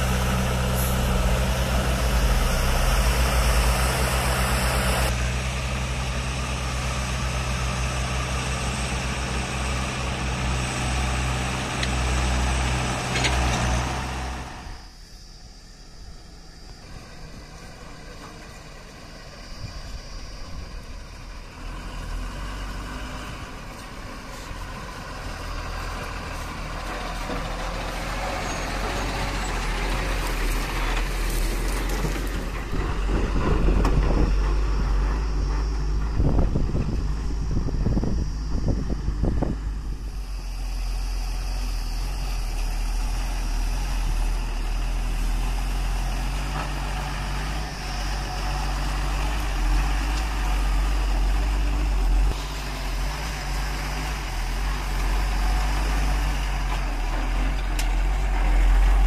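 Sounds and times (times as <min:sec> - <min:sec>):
diesel trucks driving past: 0:00.0 - 0:59.0.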